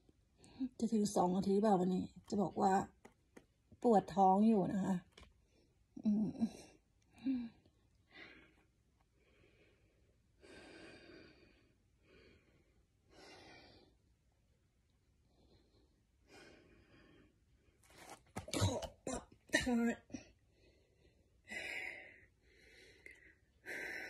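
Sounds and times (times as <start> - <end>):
woman breathing heavily: 7.1 - 14.1, 15.2 - 17.7, 20.3 - 24.0.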